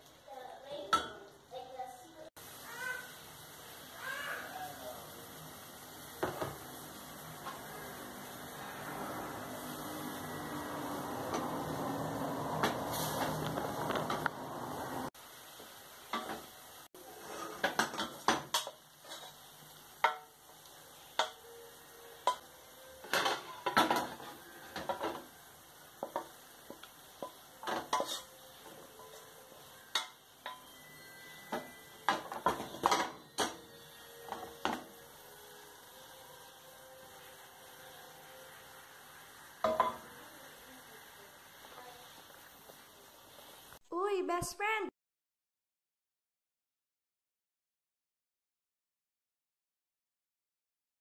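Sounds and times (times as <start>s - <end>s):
wooden spoon scraping a steel pot: 17.0s - 18.1s, 27.7s - 28.4s.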